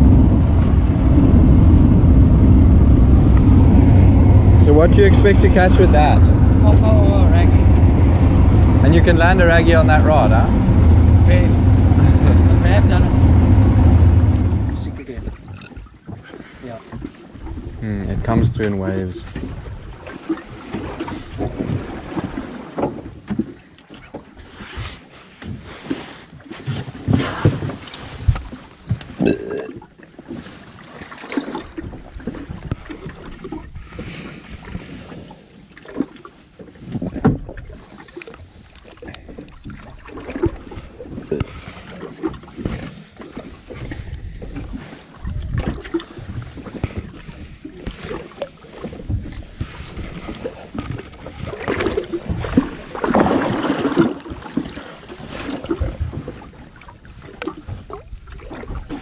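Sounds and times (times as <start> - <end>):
knocks and bumps on boat: 0.0 - 15.4, 16.9 - 24.4, 26.6 - 29.2, 35.9 - 37.9, 39.2 - 56.6
wind buffeting microphone: 0.0 - 15.6
water lapping against boat hull: 0.0 - 59.0.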